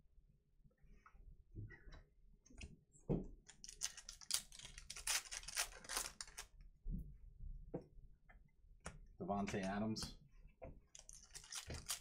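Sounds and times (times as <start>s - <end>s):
cards rustling and tapping: 3.5s - 6.5s, 10.9s - 12.0s
foil wrapper tearing and crinkling: 3.6s - 6.5s, 11.0s - 12.0s.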